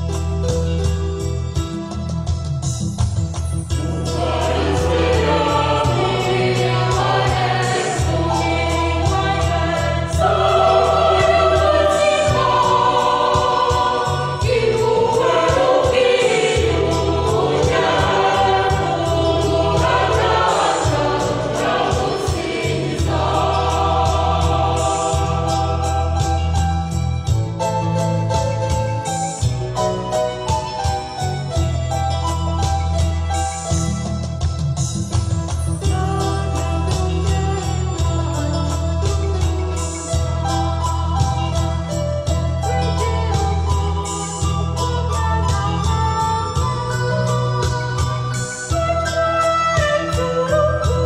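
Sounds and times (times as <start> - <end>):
instrumental accompaniment with bass: 0.0 - 51.0
choir singing a hymn: 3.7 - 27.4.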